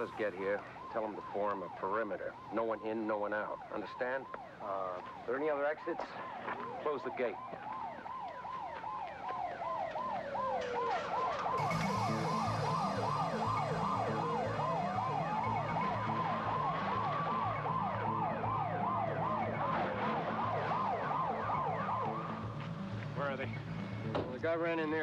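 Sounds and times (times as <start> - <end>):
police siren wailing: 0.0 - 25.0
police sirens yelping: 0.0 - 25.0
low pulsing rhythm: 11.6 - 24.2.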